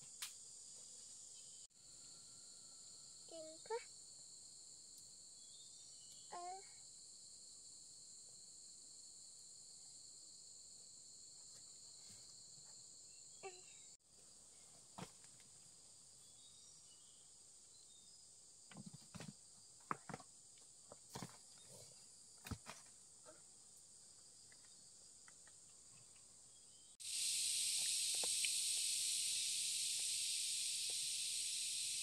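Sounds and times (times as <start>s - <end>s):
high-pitched insect drone: 27.0s - 32.0s.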